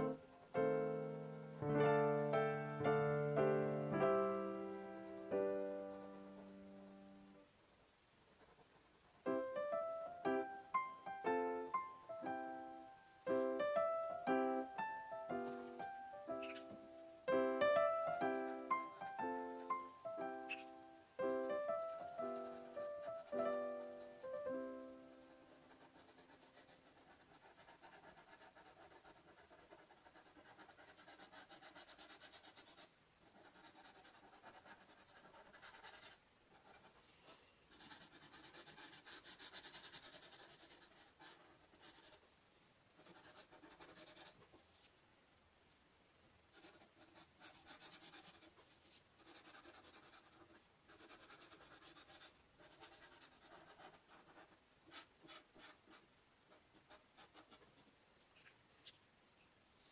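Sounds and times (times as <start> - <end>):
marker scratching on paper: 25.2 - 42.2, 43.0 - 44.4, 46.6 - 56.0.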